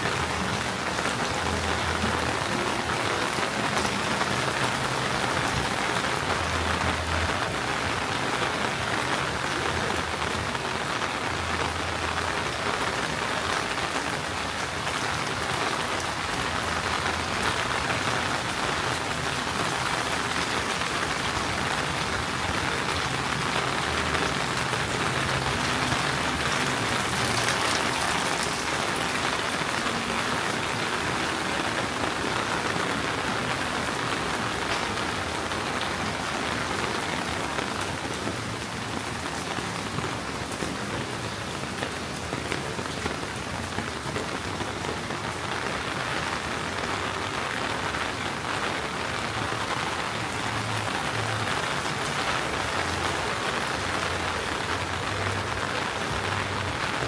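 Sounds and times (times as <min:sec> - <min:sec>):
rain falling: 0:00.0 - 0:57.0.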